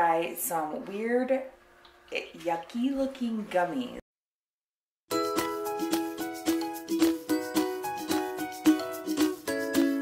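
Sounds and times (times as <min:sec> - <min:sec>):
cheerful intro music jingle: 0:05.1 - 0:10.0.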